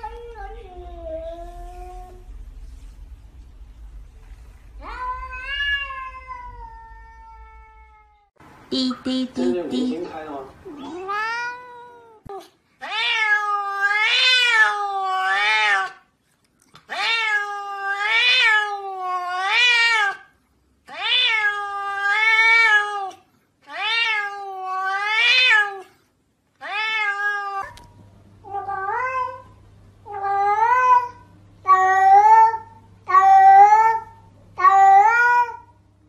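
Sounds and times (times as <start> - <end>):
cats meowing: 4.8 - 8.3, 10.7 - 16.0.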